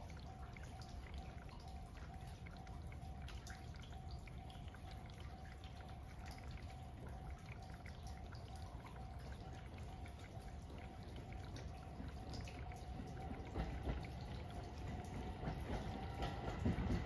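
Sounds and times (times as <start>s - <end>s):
raindrops ticking and dripping: 0.0s - 17.0s.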